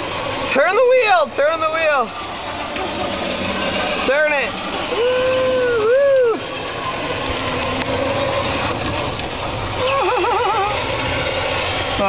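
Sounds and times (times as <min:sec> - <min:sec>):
electric ride-on car running: 0:00.0 - 0:12.0
warbling voice call: 0:09.8 - 0:11.0
drawn-out voice call: 0:09.8 - 0:11.1.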